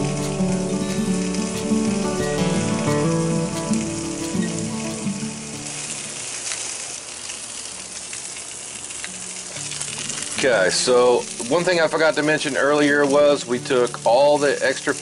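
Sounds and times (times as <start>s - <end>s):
background music: 0.0s - 6.1s
meat sizzling on a grill: 0.0s - 15.0s.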